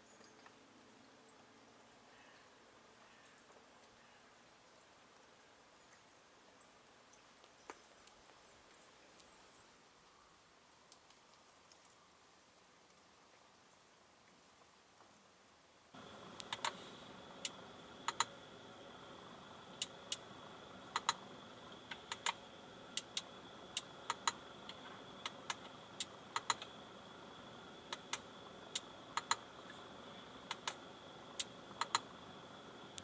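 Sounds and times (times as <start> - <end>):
faint high whine: 15.8 - 33.0.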